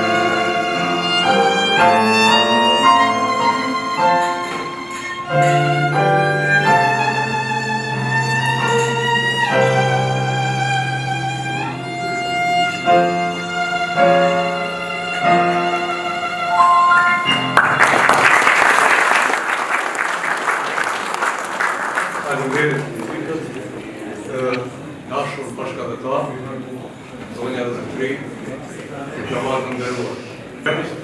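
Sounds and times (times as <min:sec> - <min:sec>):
violin slow melody: 0:00.0 - 0:17.7
audience applause: 0:17.2 - 0:23.9.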